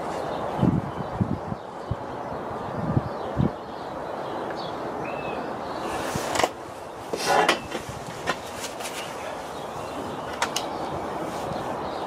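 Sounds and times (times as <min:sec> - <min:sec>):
rustling scrape: 0:05.8 - 0:10.0.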